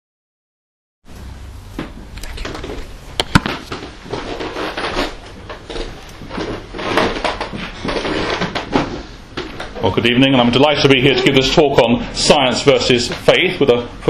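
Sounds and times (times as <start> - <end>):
rustling and handling noise: 1.7 - 10.0
sharp knocks: 3.2 - 3.9.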